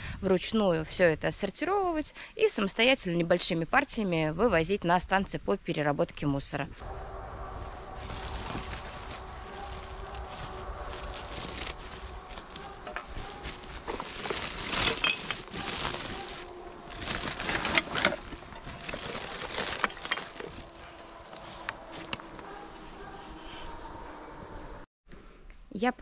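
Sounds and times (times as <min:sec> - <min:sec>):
plastic sacks rustling: 0:07.4 - 0:22.4.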